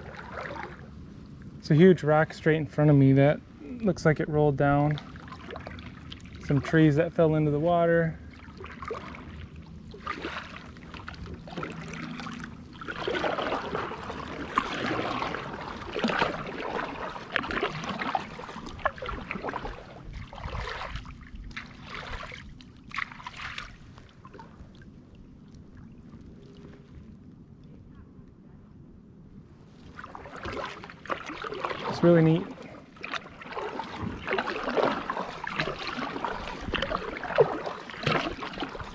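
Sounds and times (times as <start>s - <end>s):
paddle splashing water: 0.0s - 3.1s, 3.8s - 27.2s, 29.6s - 38.9s.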